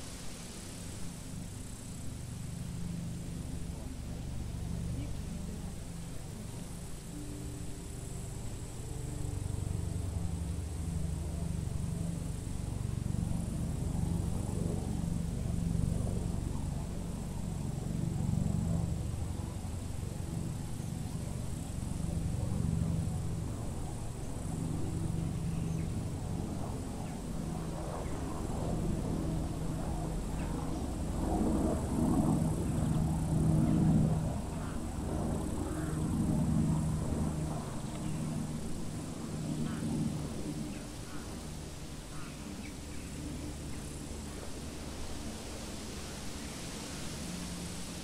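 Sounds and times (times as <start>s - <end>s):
high insect buzz: 0.0s - 48.0s.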